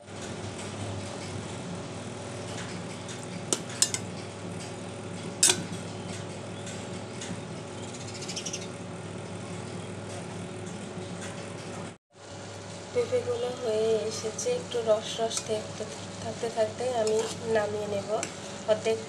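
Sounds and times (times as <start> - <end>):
metal spoon clinking on saucepan: 3.8 - 4.0, 5.4 - 5.6.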